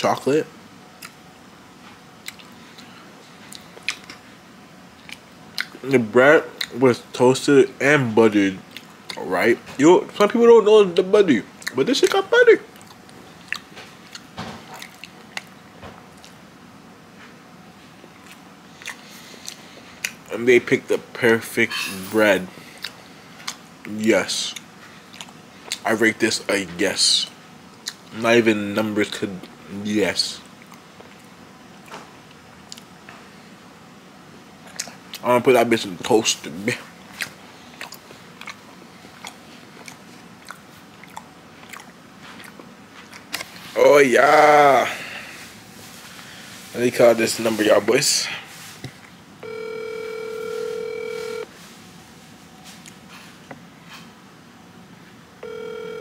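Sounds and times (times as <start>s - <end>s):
lip smacks: 2.2s - 2.9s, 3.5s - 4.2s, 5.0s - 5.8s, 11.6s - 15.6s, 18.2s - 20.2s, 34.6s - 35.2s, 37.1s - 43.6s
person chewing bread: 2.2s - 4.2s, 4.9s - 5.8s, 8.6s - 9.3s, 11.6s - 16.4s, 17.9s - 20.3s, 22.6s - 23.6s, 24.5s - 25.9s, 30.5s - 33.0s, 34.6s - 35.2s, 37.0s - 43.8s.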